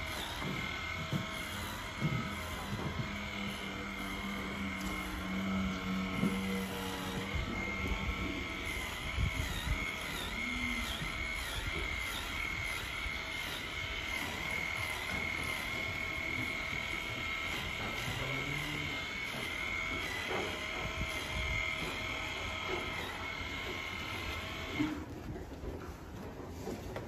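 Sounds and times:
low hum: 0.0s - 25.1s
electric brush whining: 0.0s - 25.8s.

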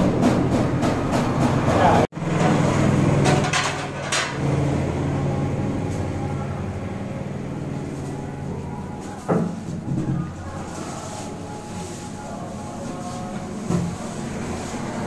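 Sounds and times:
low mechanical hum: 2.2s - 15.0s.

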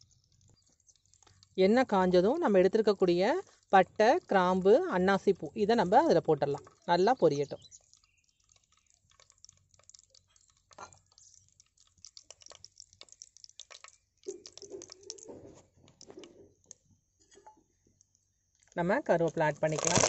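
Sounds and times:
spices sizzling in hot oil: 0.0s - 15.3s.

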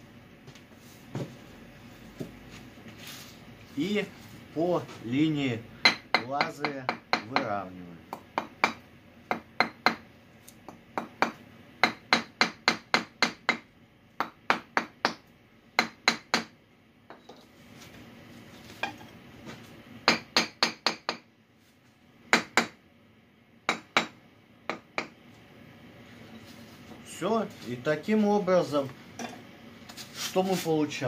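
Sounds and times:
hammer tapping brick: 5.8s - 10.0s.

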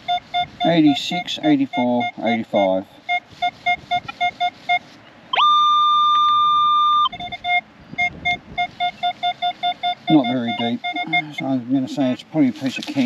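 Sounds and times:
metal detector beeping: 0.0s - 12.2s
metal detector long high tone: 3.4s - 7.6s, 8.7s - 11.5s.

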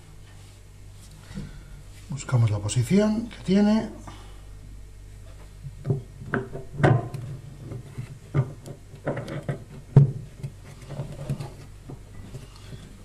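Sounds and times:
plastic parts knocking and clicking: 5.8s - 12.0s.

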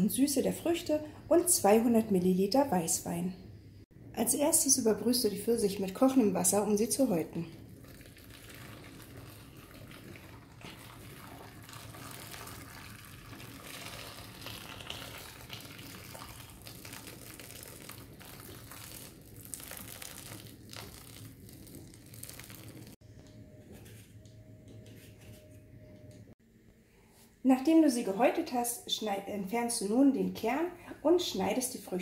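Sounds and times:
faint steady hum: 0.0s - 32.0s
water pouring into plastic bowl: 7.7s - 23.0s.

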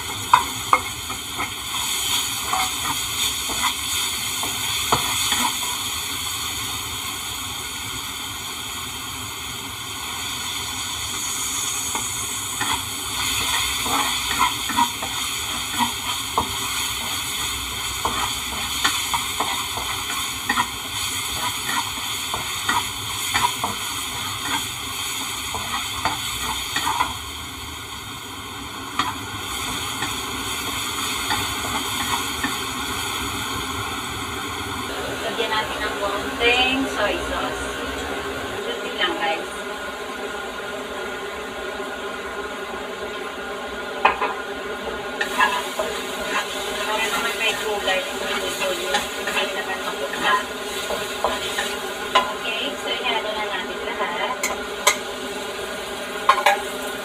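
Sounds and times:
spatula scraping and knocking wok: 0.0s - 6.2s, 11.0s - 27.3s, 28.8s - 33.7s, 44.0s - 57.0s
food sizzling in oil: 0.0s - 57.0s.

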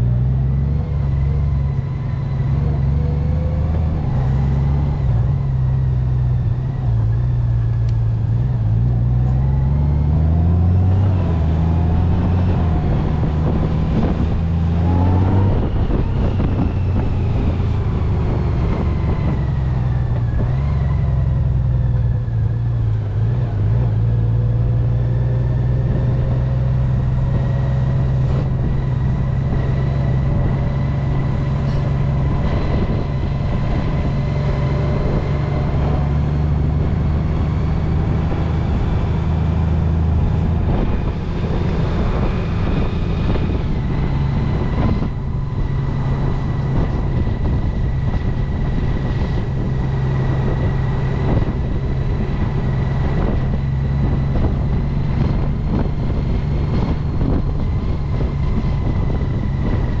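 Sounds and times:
motorcycle engine running: 15.5s - 60.0s.

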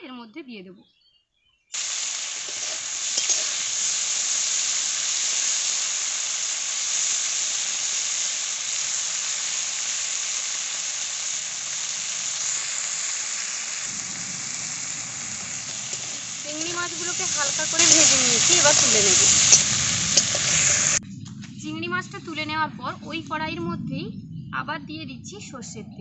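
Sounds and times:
prawns sizzling in hot oil: 1.7s - 21.0s
spatula stirring in metal pan: 2.3s - 4.1s.

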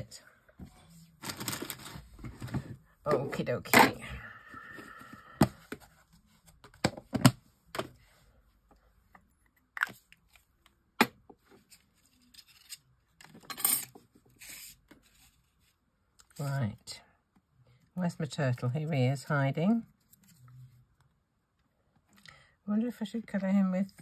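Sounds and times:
paper rustling: 1.2s - 2.6s.

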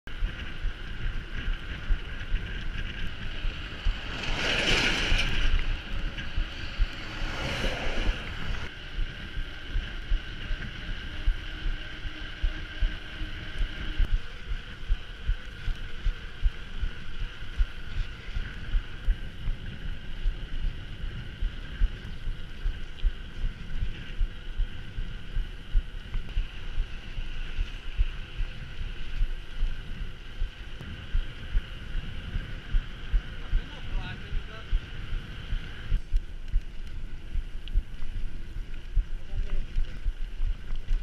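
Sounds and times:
low rumble: 0.0s - 41.0s
faint high whine: 0.1s - 41.0s
wind buffeting microphone: 0.1s - 41.0s.

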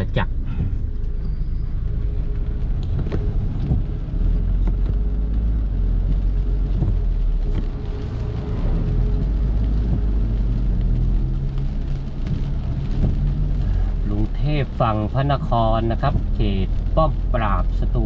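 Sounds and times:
car engine and tyre rumble: 0.0s - 18.0s
light ticks: 2.6s - 14.0s.

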